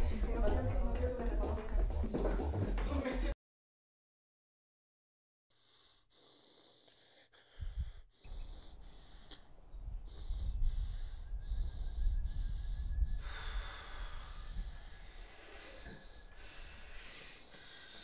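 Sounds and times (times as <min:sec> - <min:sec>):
low rumble: 0:00.0 - 0:03.3
man breathing: 0:05.5 - 0:18.0.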